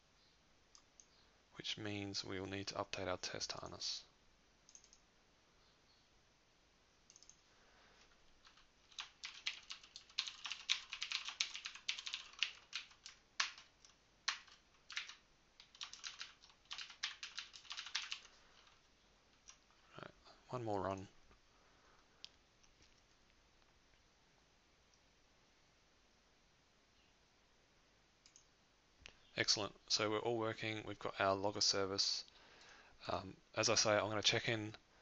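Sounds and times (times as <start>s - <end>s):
computer keyboard typing: 4.7s - 5.0s, 7.1s - 7.4s, 8.4s - 18.8s.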